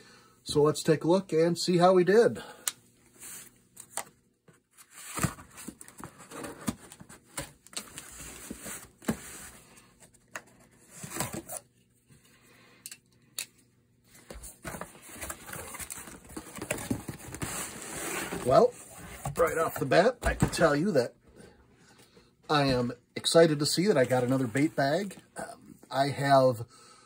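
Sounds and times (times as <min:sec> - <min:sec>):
cardboard rustling: 0:04.5 - 0:11.7, 0:14.1 - 0:20.8.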